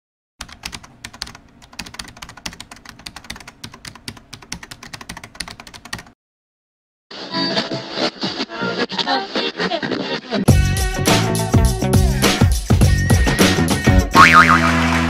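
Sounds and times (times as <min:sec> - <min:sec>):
keyboard typing clicks: 0:00.4 - 0:06.1.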